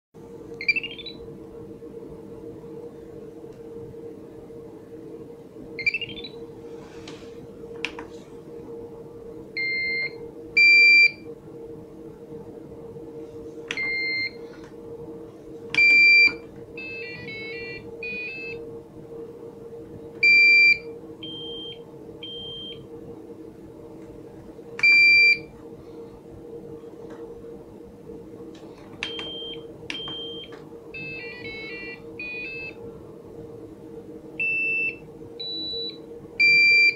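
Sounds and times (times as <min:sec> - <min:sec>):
steady low hum: 0:00.2 - 0:36.9
rising electronic chirp: 0:00.6 - 0:01.3, 0:05.8 - 0:06.5
electronic buzzer beeps: 0:29.1 - 0:32.8.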